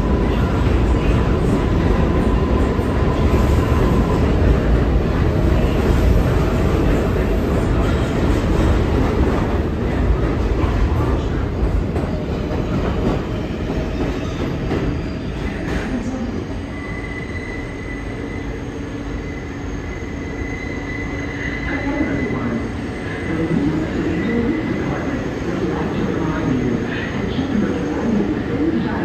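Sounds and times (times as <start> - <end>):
subway cars rumbling past: 0.0 - 29.0
high wheel squeal: 16.7 - 23.2.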